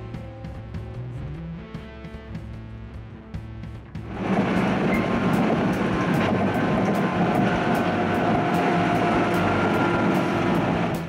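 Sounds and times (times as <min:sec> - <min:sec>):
train wheels rumbling on rail: 0:04.0 - 0:11.0.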